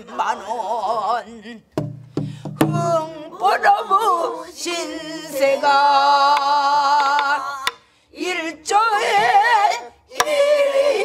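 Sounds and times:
woman singing with vibrato: 0.0s - 11.0s
drum knock: 1.8s - 3.0s.

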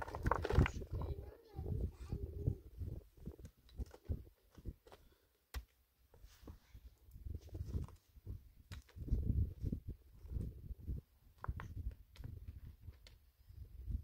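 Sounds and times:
stones set down on dry earth: 0.0s - 1.0s.

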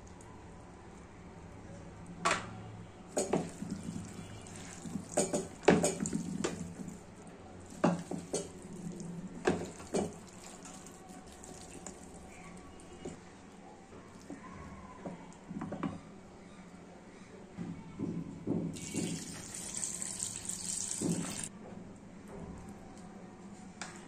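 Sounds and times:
hand squishing wet food: 3.4s - 13.2s.

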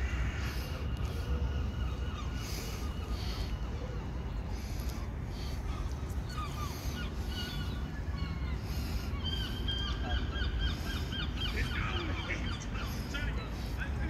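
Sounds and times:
low background rumble: 0.0s - 14.0s
small songbirds chirping: 0.0s - 14.0s.

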